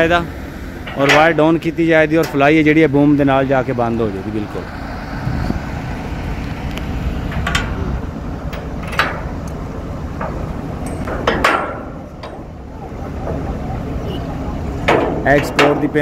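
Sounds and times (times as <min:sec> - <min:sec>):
crane engine rumbling: 0:00.0 - 0:16.0
steel fittings clanking: 0:00.8 - 0:02.6, 0:07.3 - 0:13.7, 0:14.8 - 0:16.0.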